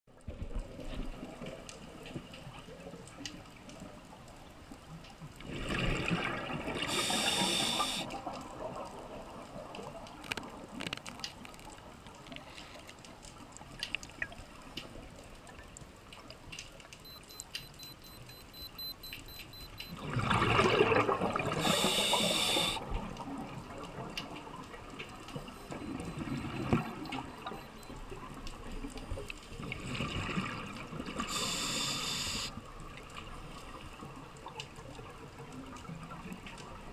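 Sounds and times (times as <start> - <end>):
diver's exhaled bubbles underwater: 5.4 - 8.7, 19.9 - 24.0
faint clicks: 6.9 - 8.5, 9.7 - 20.0, 21.6 - 29.4
low steady hiss: 21.4 - 36.9.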